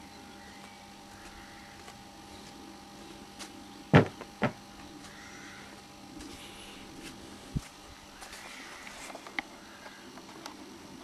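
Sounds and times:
steady electrical hum: 0.0s - 11.0s
sharp knocks: 3.9s - 4.6s.

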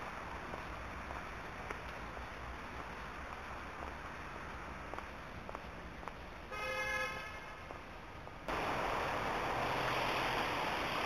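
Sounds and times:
traffic hiss on wet roads: 0.0s - 11.0s
car horn toot: 6.5s - 7.6s.

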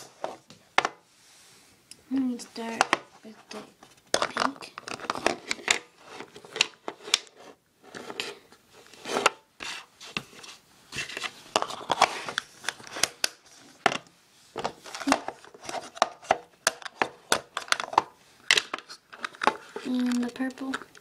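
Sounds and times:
plastic boxes clicking and knocking: 4.1s - 7.3s, 11.0s - 21.0s.

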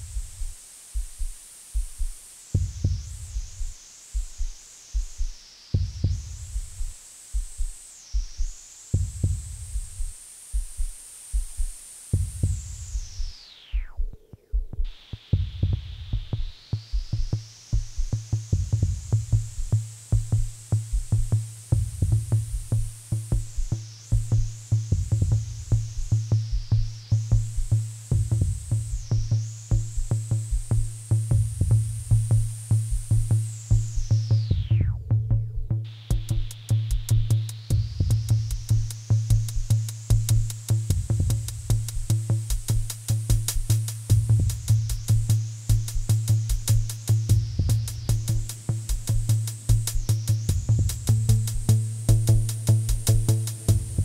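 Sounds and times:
sweeping high hiss: 0.0s - 35.0s, 35.7s - 54.0s
clicky electronic percussion: 0.0s - 54.0s
synth bass: 16.9s - 54.0s
slow synthesizer electronic music: 35.9s - 54.0s.

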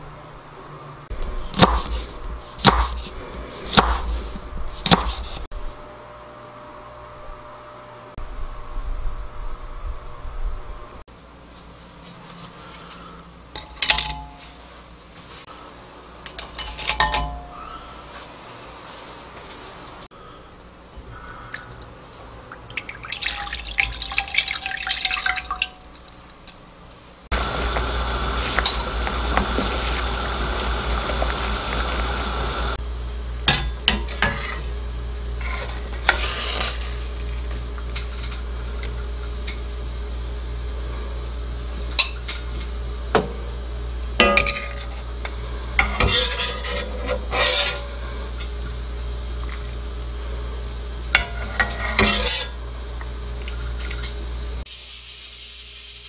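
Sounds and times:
water pouring into metal pot: 22.6s - 26.6s
stock boiling hiss: 27.0s - 32.8s, 34.1s - 39.5s, 49.6s - 56.0s
metal ladle scraping pot: 45.8s - 48.0s, 51.2s - 52.6s.

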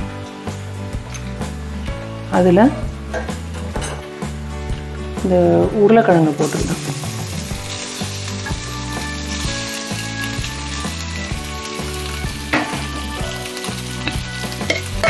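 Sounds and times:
soft background music: 0.0s - 15.0s
potatoes frying in oil: 5.7s - 15.0s.

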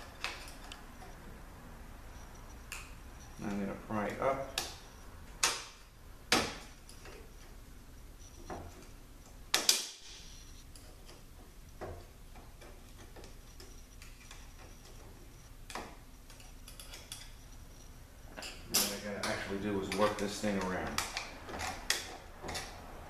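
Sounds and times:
screwdriver clicking on metal ring: 10.2s - 22.8s.

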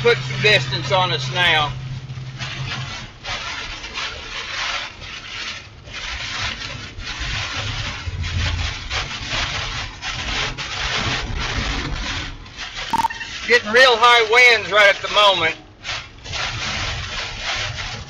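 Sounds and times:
rain beating on a vehicle: 0.0s - 12.9s
low road rumble: 0.0s - 15.8s.

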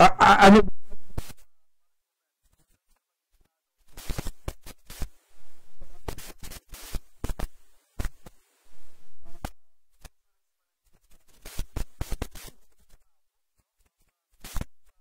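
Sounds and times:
hiss: 3.9s - 5.2s, 6.0s - 9.5s, 11.3s - 12.6s, 14.4s - 14.7s.

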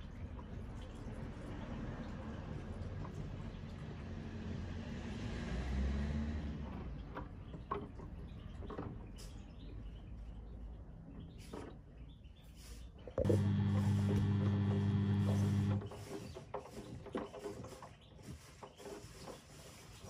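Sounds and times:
washing machine running: 13.2s - 15.9s
faint squeaks and clicks: 15.3s - 20.0s.

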